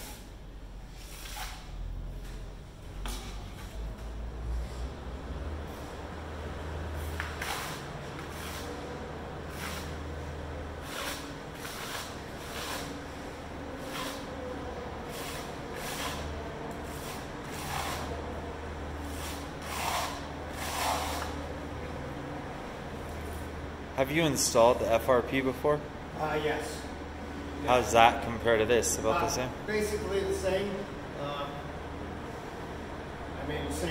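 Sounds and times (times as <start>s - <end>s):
steady low hum: 0.0s - 33.9s
trowel scraping metal plate: 19.1s - 21.4s.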